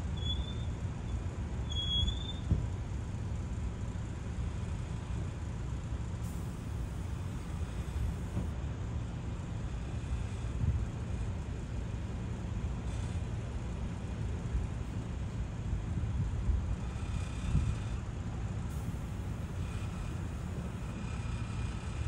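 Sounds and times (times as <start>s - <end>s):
traffic rumble: 6.2s - 8.5s, 18.7s - 21.1s.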